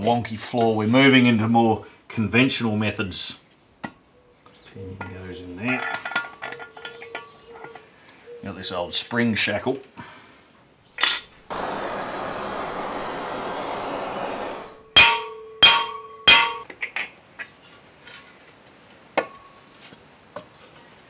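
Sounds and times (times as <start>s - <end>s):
gas torch hissing: 11.5s - 14.9s.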